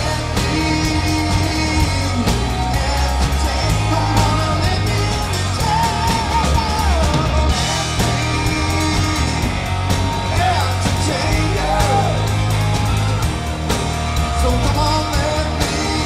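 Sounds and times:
man singing: 0.0 - 12.4, 14.2 - 16.0
drum kit beat: 0.0 - 16.0
electric guitars: 0.0 - 16.0.

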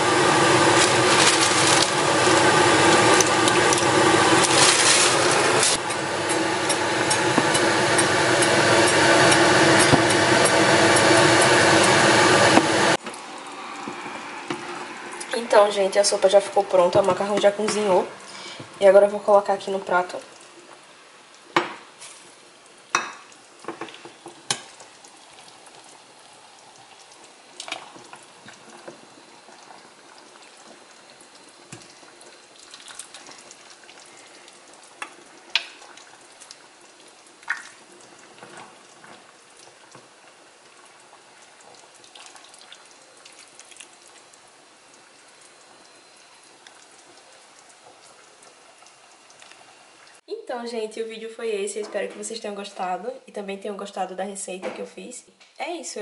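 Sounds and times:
faint steady hiss: 13.0 - 56.0.

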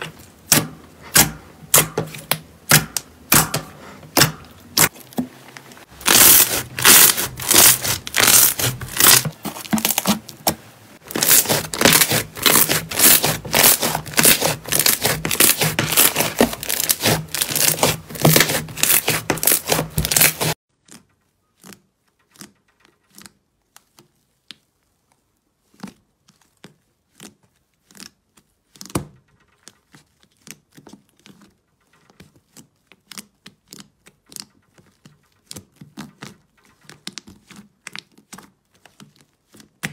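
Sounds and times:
slime crackling and popping: 5.9 - 31.5.

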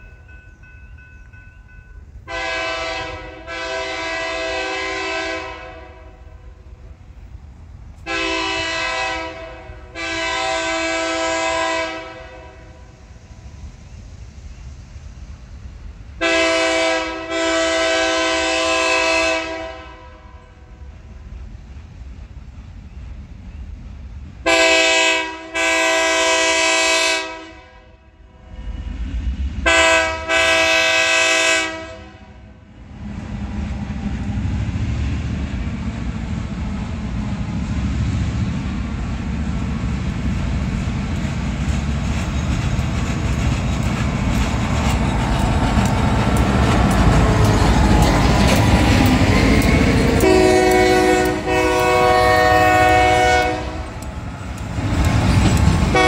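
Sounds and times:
diesel locomotive rumbling: 0.0 - 56.0
rail cars clattering: 0.0 - 56.0
locomotive horn blasts: 2.3 - 6.4, 8.0 - 12.9, 16.2 - 20.5, 24.4 - 28.2, 29.6 - 32.5, 46.4 - 54.1.

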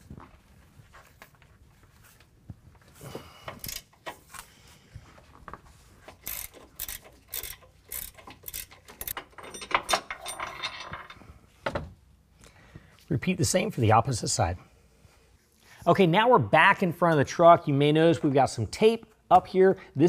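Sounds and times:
hand ratchet clicking: 3.5 - 4.2, 6.1 - 10.2.

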